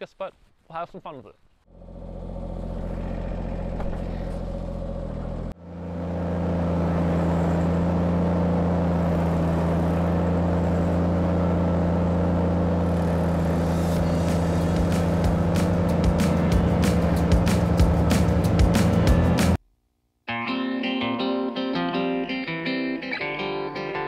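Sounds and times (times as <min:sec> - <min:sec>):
tractor engine running: 0:01.7 - 0:19.6
stump grinder grinding wood: 0:01.8 - 0:18.6.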